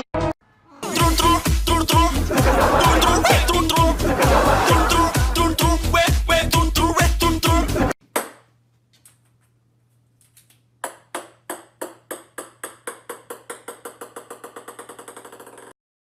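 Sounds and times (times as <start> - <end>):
background music: 0.0 - 8.0
ball bouncing on wooden floor: 10.8 - 15.7.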